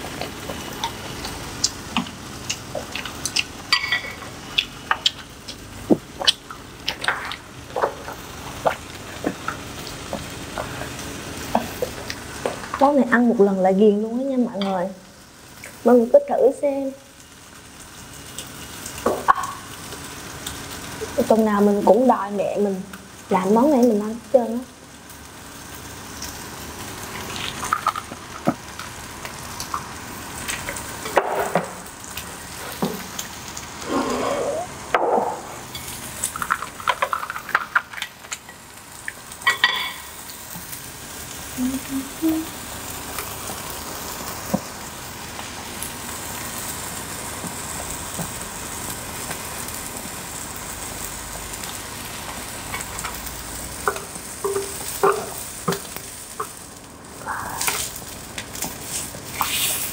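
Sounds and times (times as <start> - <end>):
beef sizzling on a grill: 0.0 - 59.9
utensils clicking and tapping: 53.8 - 56.6.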